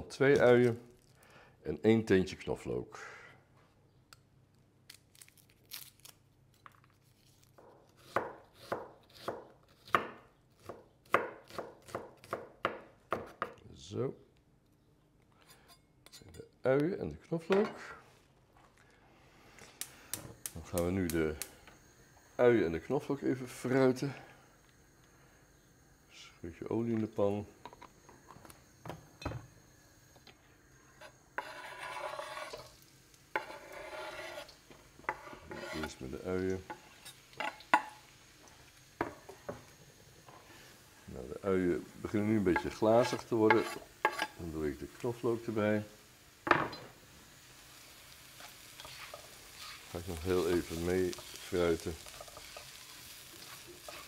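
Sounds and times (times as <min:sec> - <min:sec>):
knife chopping on wooden board: 0:08.0 - 0:13.6
onions sizzling in hot oil: 0:26.8 - 0:54.0.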